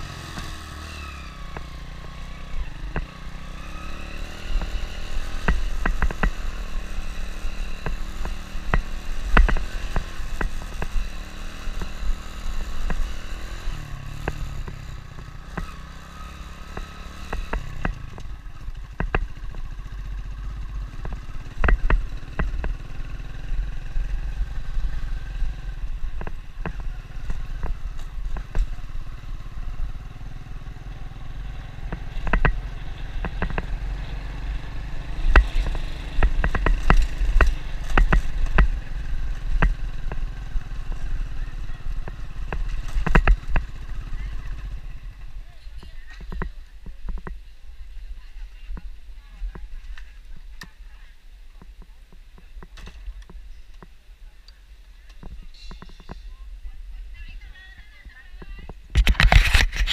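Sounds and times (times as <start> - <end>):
motorbike engine running: 0.0 - 47.4
knocks and rattles over stones: 58.4 - 59.9.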